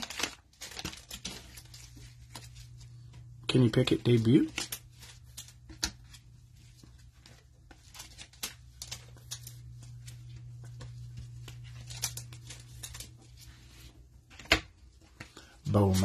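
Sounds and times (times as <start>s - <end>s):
cards being flipped: 4.1s - 14.6s.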